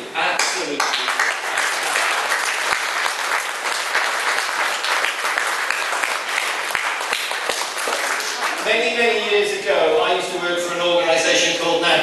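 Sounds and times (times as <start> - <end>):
audience applause: 0.7 - 9.0.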